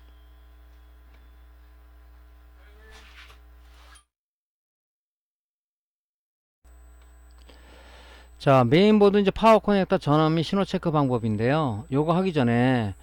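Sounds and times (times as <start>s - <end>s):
low electrical hum: 0.0s - 3.9s, 6.7s - 13.0s.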